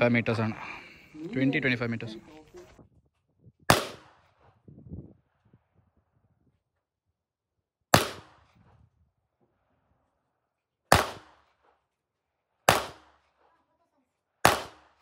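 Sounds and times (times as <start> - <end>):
pistol shots echoing: 3.7 - 4.2, 7.9 - 8.4, 10.9 - 11.6, 12.7 - 13.3, 14.4 - 15.0.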